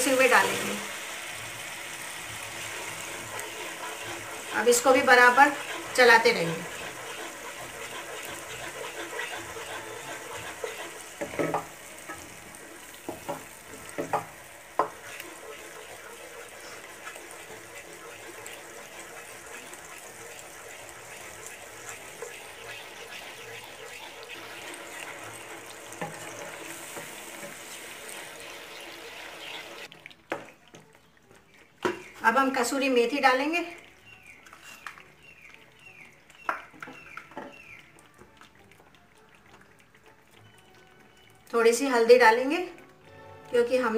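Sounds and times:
frying sizzle: 0.0 - 43.9
wooden spoon stirring sauce: 1.6 - 42.9
spoon knocking against pan: 11.2 - 12.4, 13.0 - 15.1.

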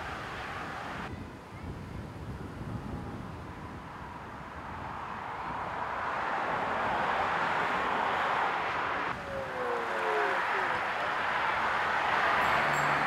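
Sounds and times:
car tyre noise passing: 3.6 - 13.0.

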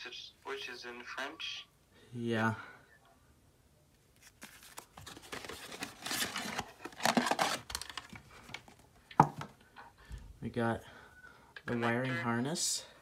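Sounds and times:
cardboard and paper rustling: 4.2 - 9.5.

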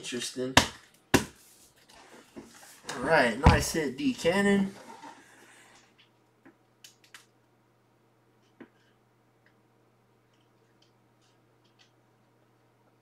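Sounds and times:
room hum: 0.0 - 13.0.

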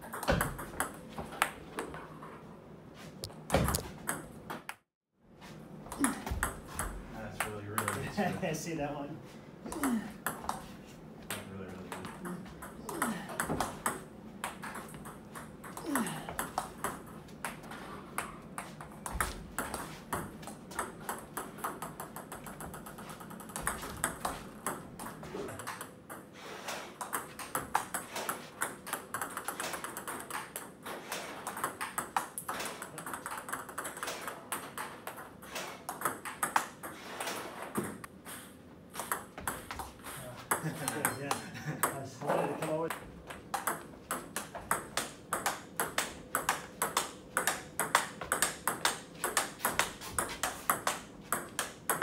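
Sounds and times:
ball bouncing on table: 0.0 - 2.0, 3.2 - 4.7
table tennis balls clicking: 11.3 - 26.3, 26.9 - 38.1, 42.6 - 52.0.

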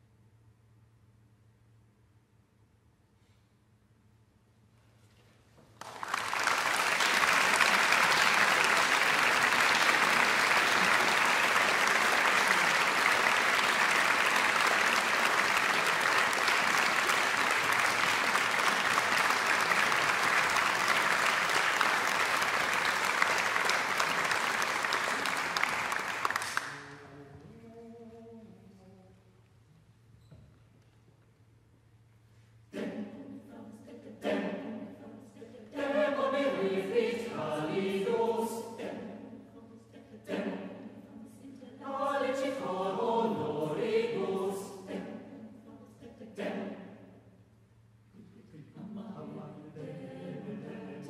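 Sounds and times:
audience applauding: 5.8 - 27.0.

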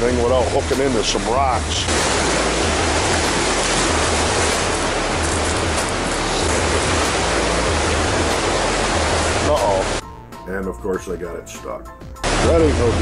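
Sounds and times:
river water rushing over rapids: 1.2 - 10.0, 12.3 - 13.0.

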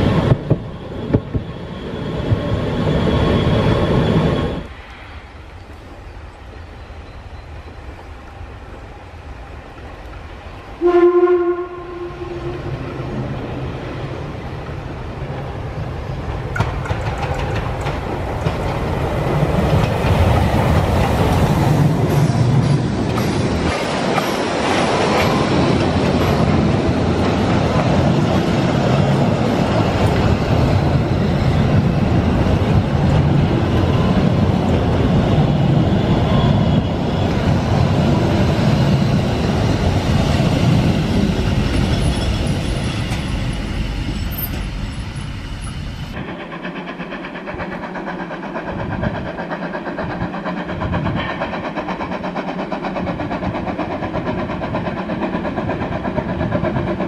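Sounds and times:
coaches rolling on rails: 0.0 - 57.0
steam locomotive running past: 0.0 - 57.0
steam locomotive whistle: 10.8 - 12.7.

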